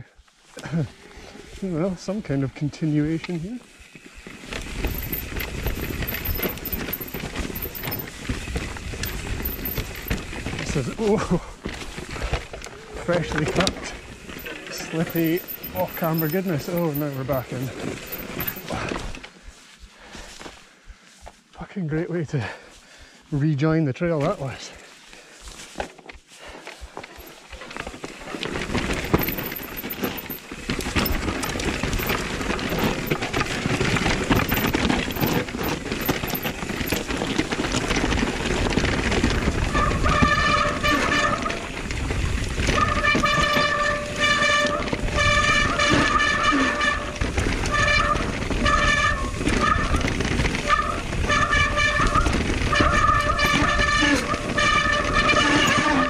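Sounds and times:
bike tyres on rough trail: 0:00.0 - 0:21.6, 0:22.3 - 0:56.0
disc brakes howling: 0:00.7 - 0:19.1, 0:27.0 - 0:56.0
bike chassis rattle: 0:04.0 - 0:19.1, 0:26.9 - 0:46.5, 0:47.2 - 0:56.0.

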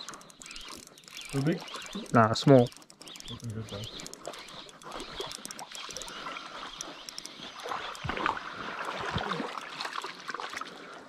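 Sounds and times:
stream water splashing: 0:04.1 - 0:11.0.

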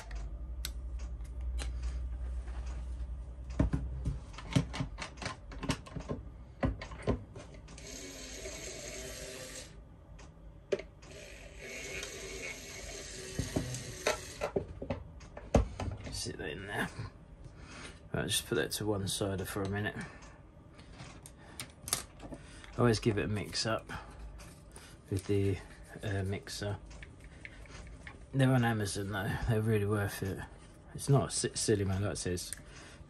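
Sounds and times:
paint mixer humming: 0:11.1 - 0:14.6.

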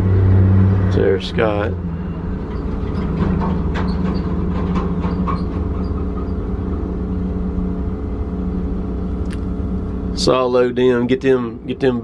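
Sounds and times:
diesel engine running: 0:00.0 - 0:12.0
truck trailer rattling and clanking: 0:00.9 - 0:07.2.

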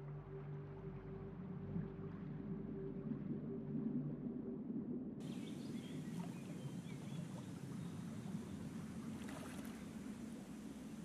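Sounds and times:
river water lapping: 0:05.2 - 0:11.0
water splashing: 0:05.3 - 0:11.0.

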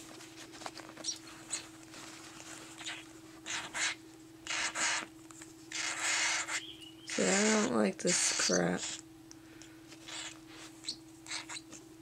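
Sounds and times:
faint steady hum: 0:00.0 - 0:12.0
chick raspy begging calls: 0:05.7 - 0:09.0.

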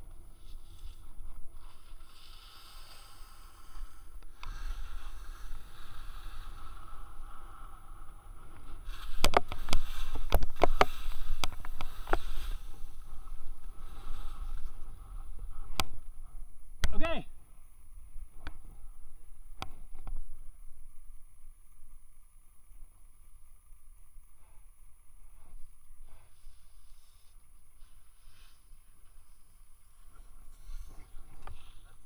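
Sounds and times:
skis sliding on snow: 0:00.2 - 0:07.2, 0:08.6 - 0:15.2, 0:26.1 - 0:29.4
sharp ski scrapes and clicks: 0:08.9 - 0:13.0.

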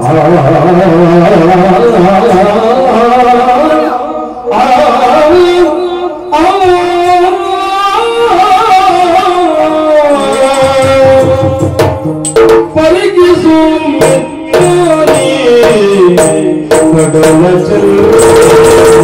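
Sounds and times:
man singing long sliding notes: 0:00.0 - 0:11.8, 0:12.7 - 0:19.0
sharp drum strokes: 0:10.2 - 0:19.0.

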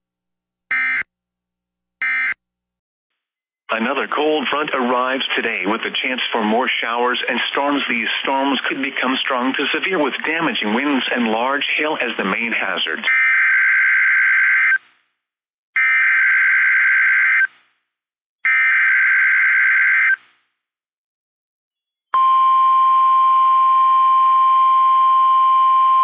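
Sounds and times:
steady warning alarm tone: 0:00.7 - 0:01.1, 0:02.0 - 0:02.4.

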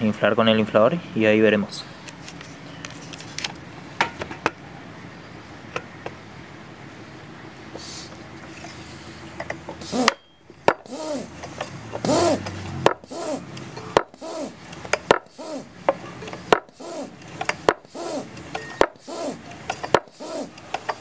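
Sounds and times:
hand air pump strokes: 0:07.8 - 0:10.2, 0:10.8 - 0:21.0.

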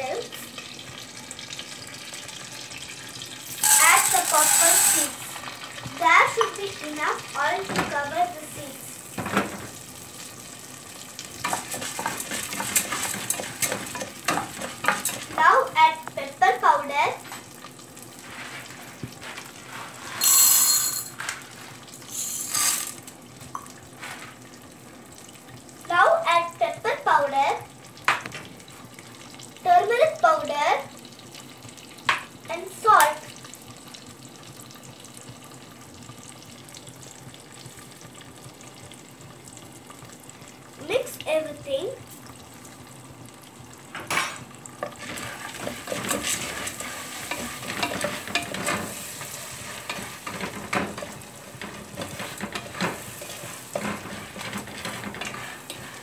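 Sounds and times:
kernels sizzling in hot oil: 0:00.0 - 0:56.0
spatula scraping pot: 0:03.4 - 0:05.5, 0:11.4 - 0:15.5, 0:44.8 - 0:56.0.

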